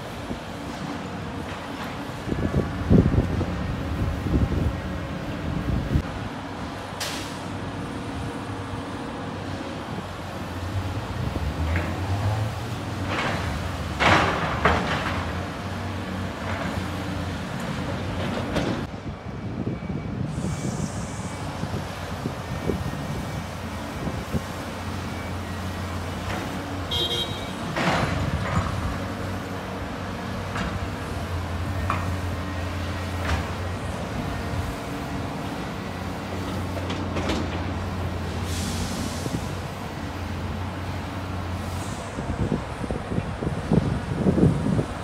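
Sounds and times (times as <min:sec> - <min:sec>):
diesel excavator engines droning: 0:00.0 - 0:45.0
brief hiss: 0:38.4 - 0:39.5.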